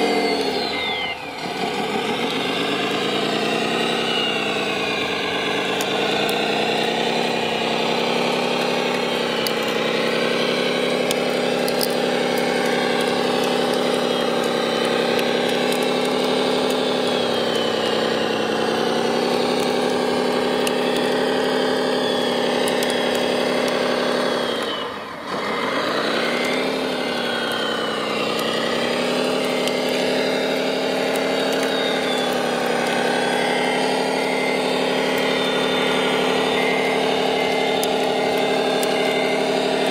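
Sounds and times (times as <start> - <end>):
model bulldozer motor droning: 0.0 - 39.9.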